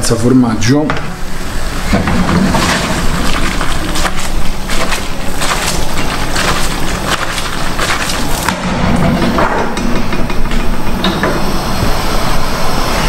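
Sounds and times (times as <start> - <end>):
pan shaken on burner: 2.0 - 9.2.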